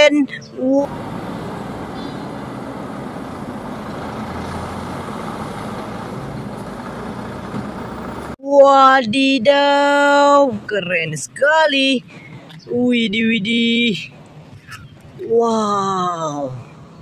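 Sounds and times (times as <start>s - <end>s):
street traffic noise: 0.0s - 17.0s
truck diesel engine running: 0.8s - 8.4s.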